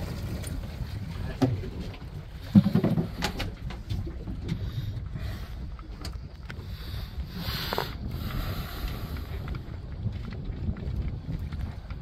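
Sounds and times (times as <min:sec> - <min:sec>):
boat motor rumble: 0:00.0 - 0:12.0
water noise: 0:00.0 - 0:12.0
wind: 0:00.0 - 0:12.0.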